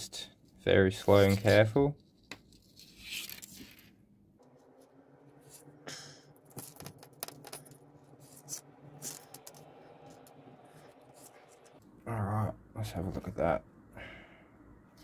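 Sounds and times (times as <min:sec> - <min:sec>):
low steady hum: 0:04.0 - 0:15.0.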